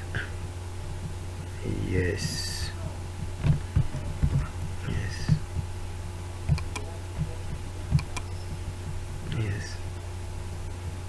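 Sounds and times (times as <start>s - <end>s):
electrical hum: 0.0s - 11.0s
sharp mouse clicks: 6.5s - 6.9s, 7.9s - 8.5s.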